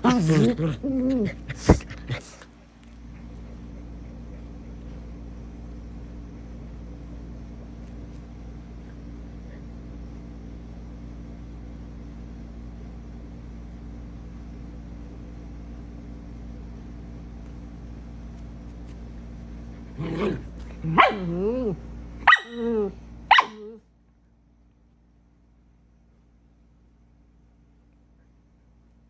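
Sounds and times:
machine hum: 0:00.0 - 0:29.0.

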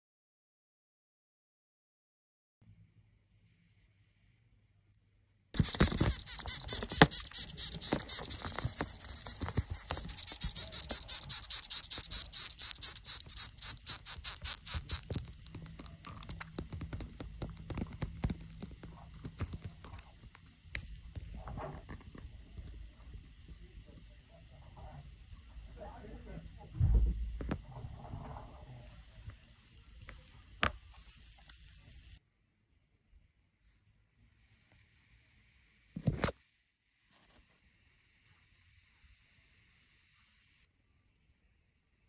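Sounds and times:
moth squeaking: 0:05.6 - 0:19.8.

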